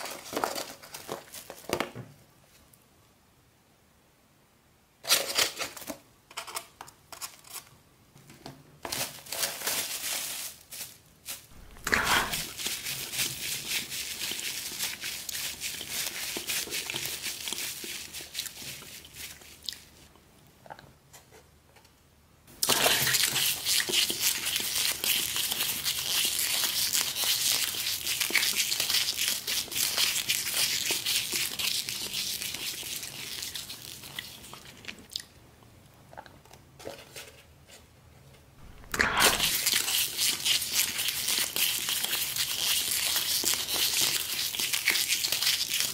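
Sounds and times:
paper towel and foam tray crinkling: 0:00.0 - 0:01.9, 0:08.8 - 0:19.4, 0:38.6 - 0:45.9.

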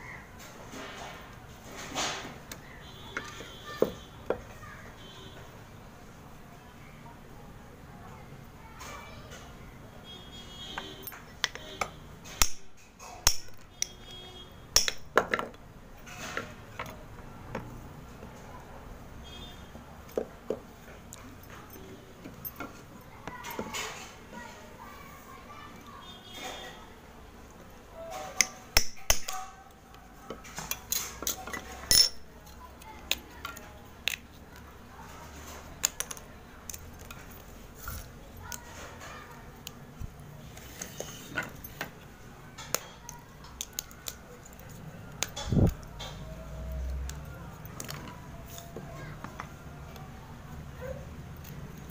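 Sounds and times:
knife scraping clay: 0:40.4 - 0:42.1.

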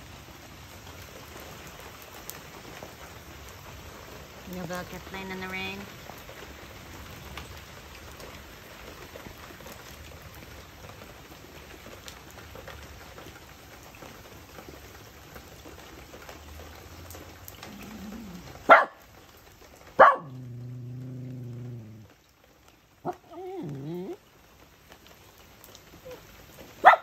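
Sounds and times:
rain pattering: 0:00.0 - 0:27.0
low drawn-out grumble: 0:17.6 - 0:18.6, 0:20.3 - 0:22.1, 0:23.3 - 0:24.2
puppy barking: 0:17.7 - 0:19.1, 0:20.0 - 0:21.3, 0:23.0 - 0:24.2, 0:26.8 - 0:27.0.

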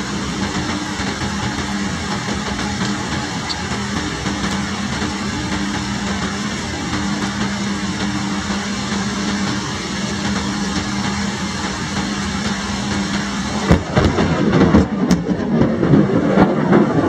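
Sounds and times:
heavy rain falling: 0:00.0 - 0:17.0
thunder rumble with crackles: 0:13.2 - 0:17.0.

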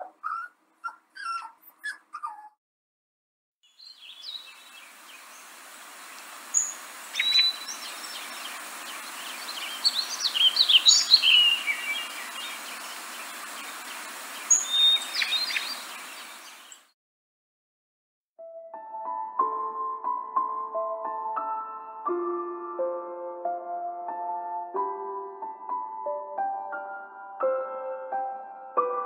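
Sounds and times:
birds chirping: 0:00.0 - 0:02.5, 0:03.7 - 0:16.9
background hiss: 0:03.7 - 0:16.9.

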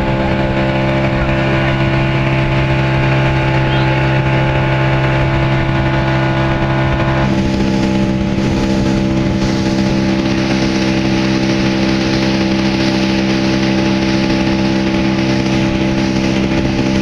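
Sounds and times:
boat engine droning: 0:00.0 - 0:17.0
water spraying off hull: 0:00.0 - 0:17.0.

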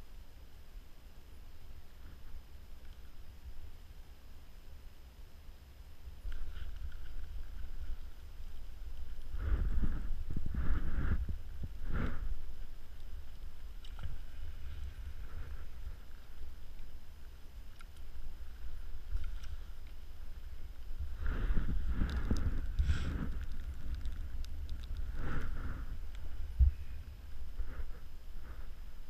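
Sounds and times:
wind rumbling on microphone: 0:06.1 - 0:29.0.

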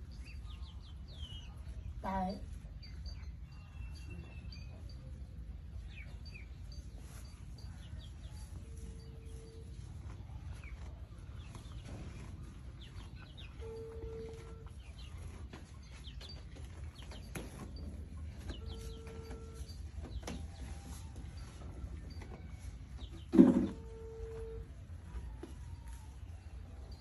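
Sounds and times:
birds chirping: 0:00.0 - 0:20.6.

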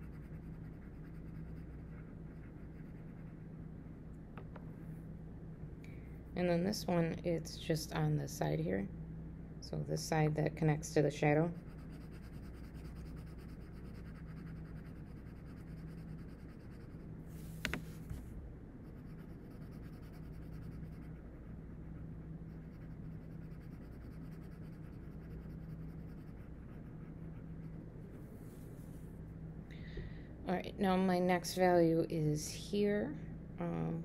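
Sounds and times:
pencil scratching on paper: 0:00.0 - 0:03.4, 0:11.5 - 0:17.0, 0:18.8 - 0:27.8.

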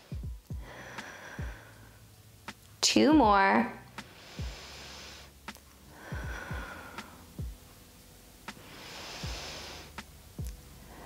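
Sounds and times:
person breathing hard: 0:00.0 - 0:02.1, 0:04.0 - 0:07.6, 0:08.5 - 0:10.0
soft low thumps: 0:00.1 - 0:01.8, 0:02.5 - 0:03.5, 0:04.4 - 0:04.7, 0:05.5 - 0:07.8, 0:09.2 - 0:10.7.

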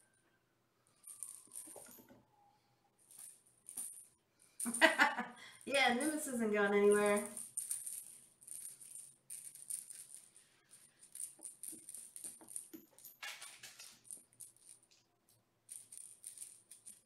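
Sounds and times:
plastic toy rattle shaken: 0:01.0 - 0:02.1, 0:04.6 - 0:05.0, 0:05.6 - 0:15.0, 0:15.7 - 0:17.0.

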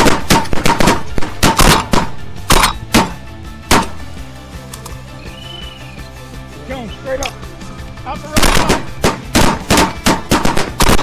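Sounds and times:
shotgun blasts: 0:00.0 - 0:04.0, 0:08.4 - 0:11.0
background music: 0:00.0 - 0:11.0.

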